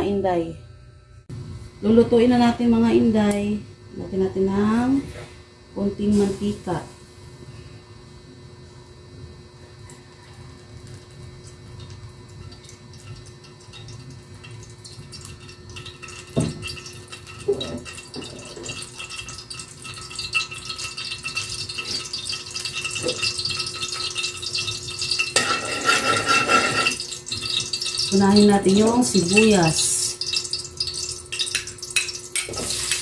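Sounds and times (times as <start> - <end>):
oil sizzling and crackling: 10.4 - 33.0
spatula scraping a wok: 25.3 - 27.0.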